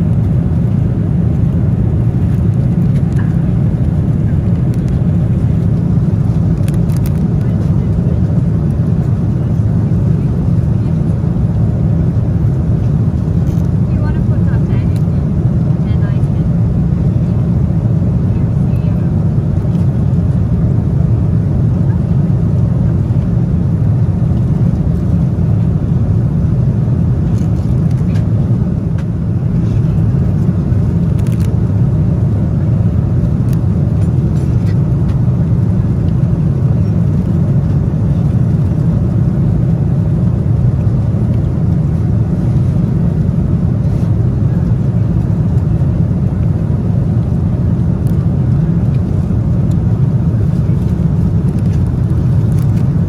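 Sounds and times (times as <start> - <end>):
airliner cabin rumble: 0.0 - 53.0.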